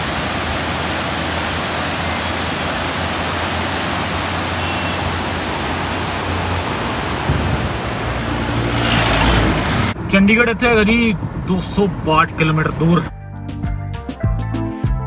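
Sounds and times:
river rushing over boulders: 0.0s - 10.0s
vehicle engine humming: 0.0s - 12.1s.

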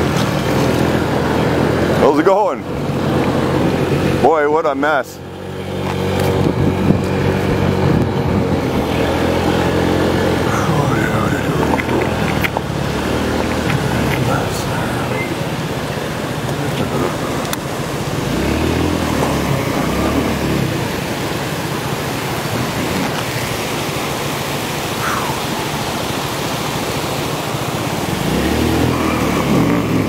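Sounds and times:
low engine note: 0.0s - 30.0s
wind across microphone: 5.6s - 15.4s.

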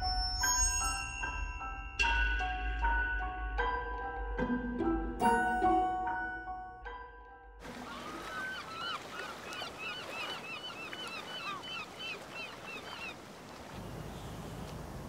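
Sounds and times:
flock of birds calling: 7.7s - 13.2s.

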